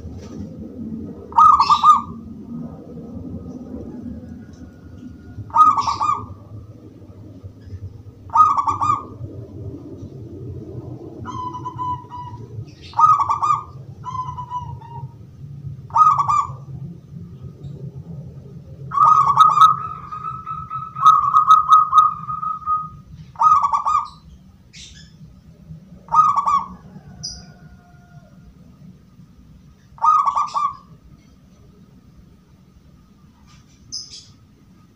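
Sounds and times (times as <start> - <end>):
dove cooing: 0.0 - 16.9, 18.8 - 24.3, 26.0 - 28.4, 29.9 - 31.0
low hum: 0.0 - 34.9.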